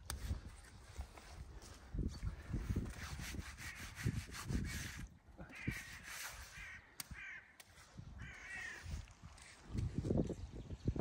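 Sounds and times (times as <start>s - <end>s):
crows cawing: 5.4s - 7.6s, 8.2s - 8.9s.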